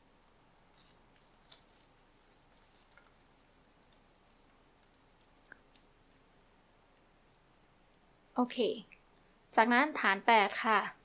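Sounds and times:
ribbon rustling: 0.5s - 7.1s.

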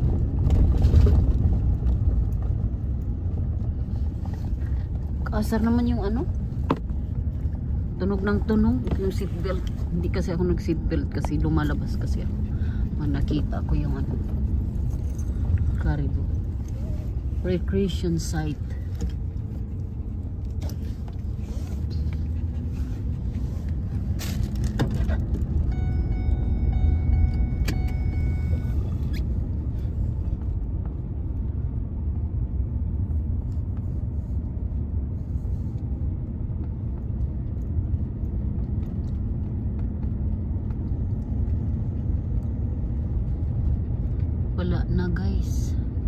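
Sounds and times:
car engine and tyre rumble: 0.0s - 46.0s
steady electronic tone: 25.7s - 29.2s.

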